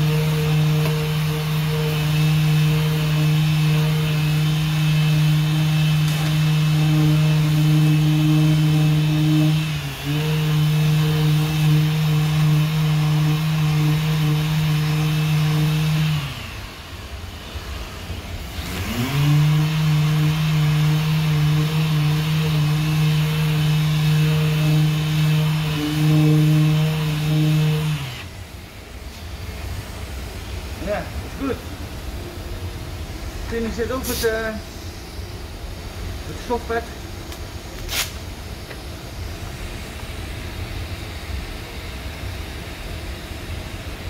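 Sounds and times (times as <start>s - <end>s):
orbital sander running: 0.0s - 28.4s.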